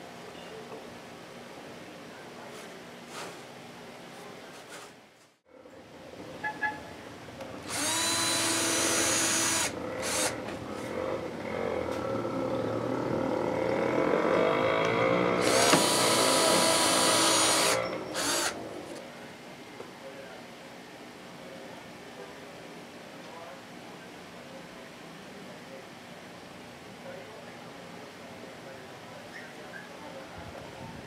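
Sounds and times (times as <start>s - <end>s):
cordless drill boring into plywood: 7.6s - 10.4s, 15.4s - 18.6s.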